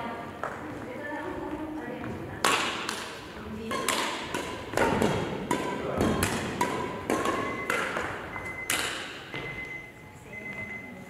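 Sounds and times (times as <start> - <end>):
racket hitting shuttlecock: 2.4 - 9.5.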